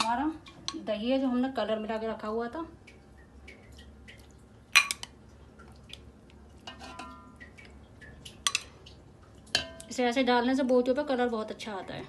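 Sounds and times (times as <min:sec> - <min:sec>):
soft wet drips: 0:00.0 - 0:12.0
spoon clinking on pot and bowl: 0:04.8 - 0:05.2, 0:06.6 - 0:07.6, 0:08.4 - 0:08.8, 0:09.5 - 0:09.9.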